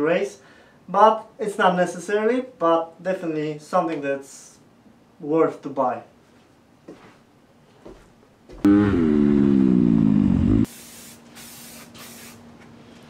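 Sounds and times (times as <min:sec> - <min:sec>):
guitar chord sliding down: 0:08.7 - 0:10.7
aerosol spray hisses: 0:10.7 - 0:12.4.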